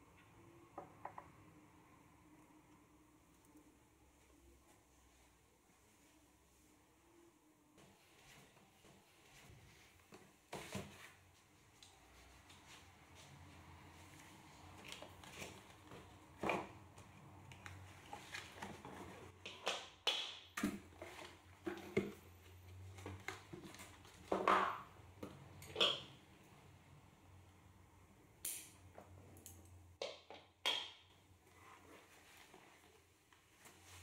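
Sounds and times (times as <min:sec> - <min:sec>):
fabric and cardboard rustling: 0:31.5 - 0:34.0.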